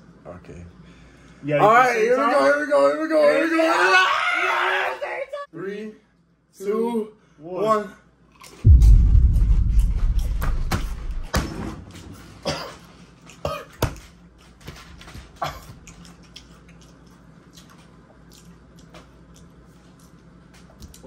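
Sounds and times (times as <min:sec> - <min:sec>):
low rumble: 0:08.6 - 0:11.3
men coughing: 0:12.5 - 0:12.8.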